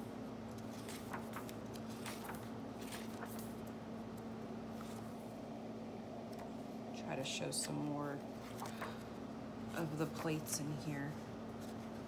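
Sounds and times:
low electrical hum: 0.0s - 12.0s
paper pages rustling: 0.4s - 5.4s, 8.4s - 9.1s, 11.6s - 12.0s.

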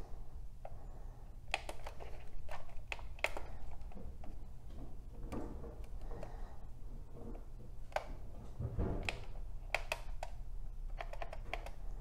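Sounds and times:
plastic buttons clicking: 9.0s - 11.8s.

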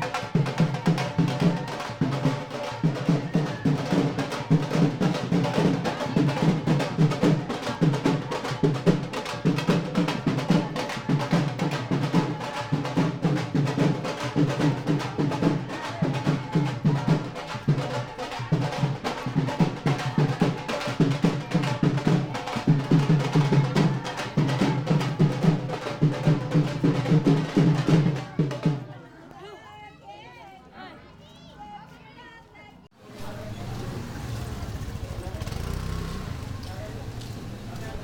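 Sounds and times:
drum-led music: 0.0s - 28.9s.

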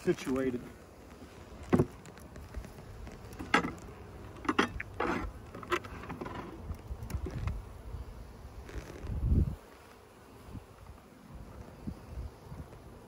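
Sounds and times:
hive frames knocking and scraping: 0.0s - 7.8s
low wind rumble: 6.5s - 9.7s.

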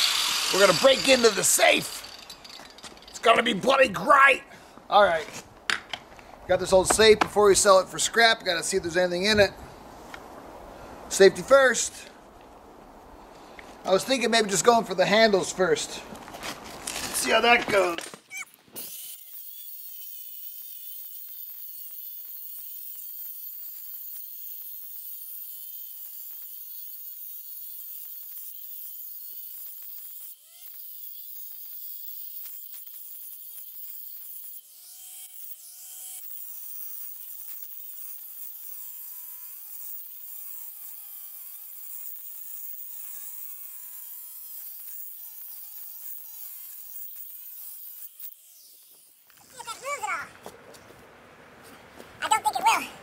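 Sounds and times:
angle grinder cutting steel: 0.0s - 4.0s, 16.9s - 50.1s.

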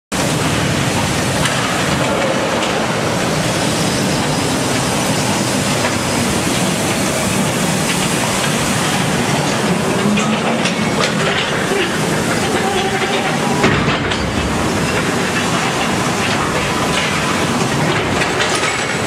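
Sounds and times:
train wheels on rail: 0.1s - 19.0s.

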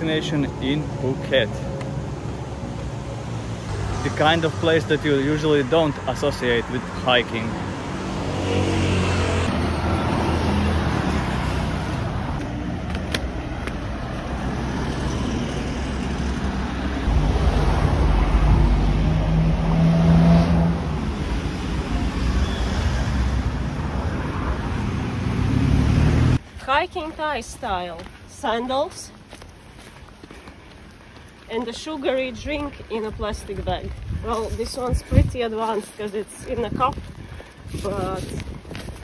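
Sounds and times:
street traffic passing: 0.0s - 39.0s
vehicle engine passing close: 14.1s - 26.4s.

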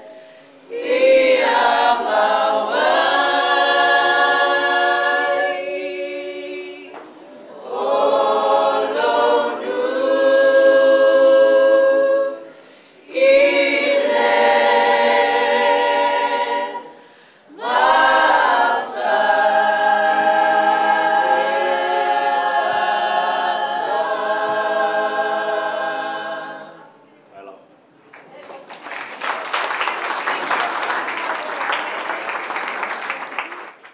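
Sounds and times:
choir singing unaccompanied: 0.0s - 26.9s.

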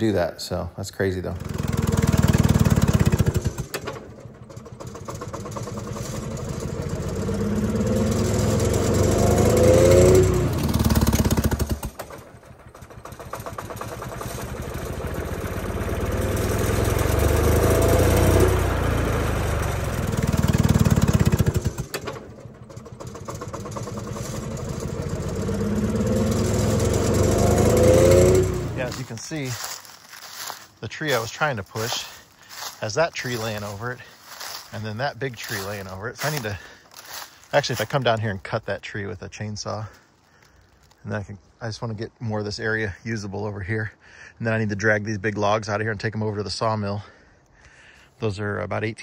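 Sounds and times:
diesel engine running: 1.0s - 38.8s.

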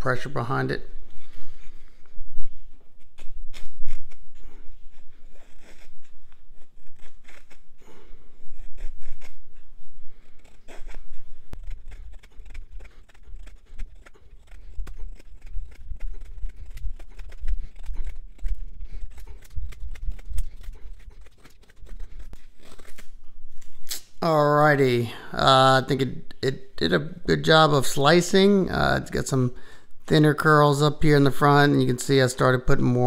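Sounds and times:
knife slicing wood: 3.0s - 9.6s, 10.2s - 24.2s.

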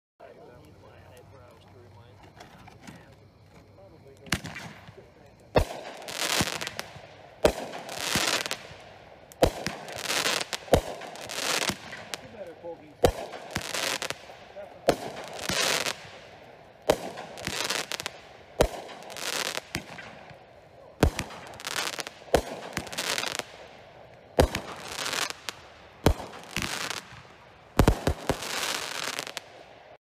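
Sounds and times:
fireworks crackling: 0.2s - 30.0s
fireworks bangs: 2.2s - 30.0s.

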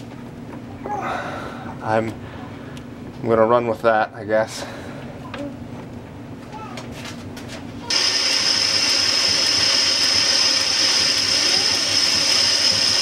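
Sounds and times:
metal lathe whining: 7.9s - 13.0s.

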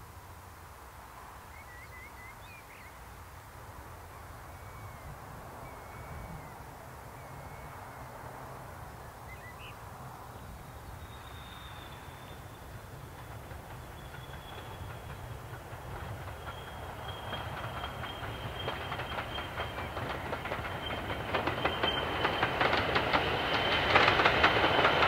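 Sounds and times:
distant train high whine: 1.0s - 25.0s.

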